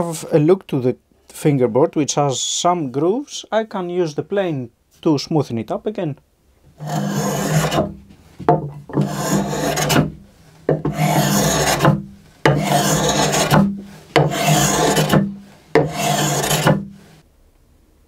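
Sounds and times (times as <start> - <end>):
plane scraping wood: 6.8 - 8.0, 8.9 - 17.1.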